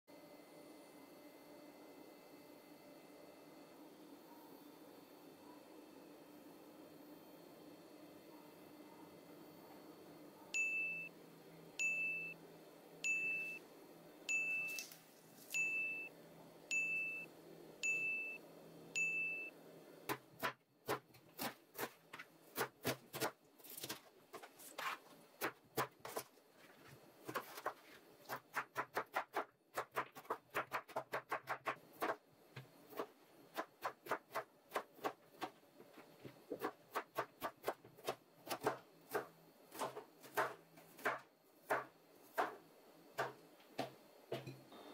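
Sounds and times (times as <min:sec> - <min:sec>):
knife chopping on plastic board: 0:20.1 - 0:24.5, 0:27.2 - 0:32.2, 0:36.5 - 0:42.6, 0:43.2 - 0:44.6.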